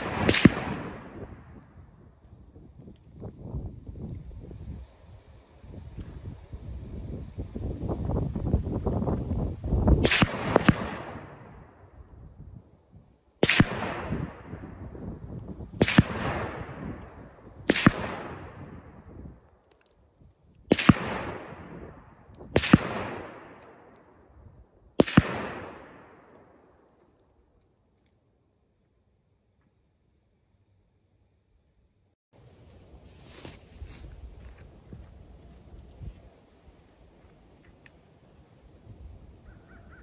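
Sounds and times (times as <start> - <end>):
rifle shots: 0.0 - 1.5, 10.0 - 11.4, 13.4 - 14.6, 15.8 - 17.0, 17.7 - 18.7, 20.7 - 21.8, 22.5 - 23.9, 25.0 - 26.3
rolling echo of gunshots: 0.0 - 1.6, 10.0 - 11.6, 13.4 - 14.8, 15.8 - 19.0, 20.7 - 23.9, 25.0 - 26.5.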